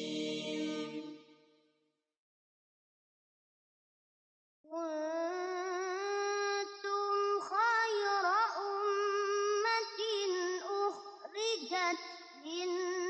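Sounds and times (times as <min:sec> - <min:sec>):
boy reciting melodically into microphone: 0:04.7 - 0:13.0.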